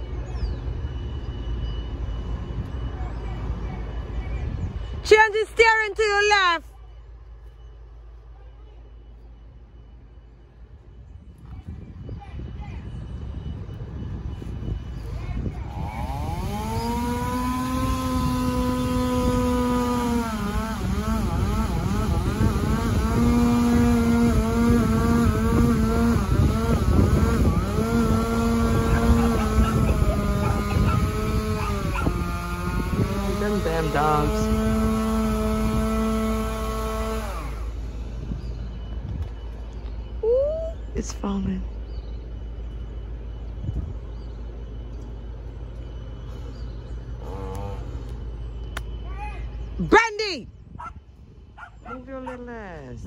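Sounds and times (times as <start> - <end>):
vehicle engine rumbling: 0.0 - 53.0
chainsaw cutting wood: 15.7 - 38.0.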